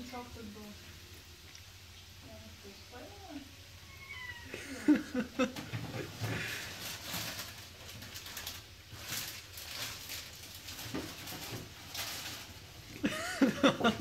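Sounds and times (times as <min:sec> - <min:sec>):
kitten licking and chewing: 0:01.4 - 0:02.2.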